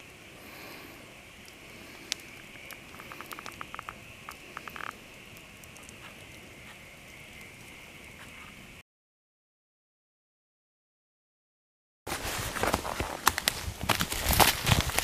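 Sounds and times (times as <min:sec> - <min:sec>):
campfire crackling: 0:00.0 - 0:08.8, 0:12.2 - 0:15.0
night insects chirring: 0:00.0 - 0:08.8.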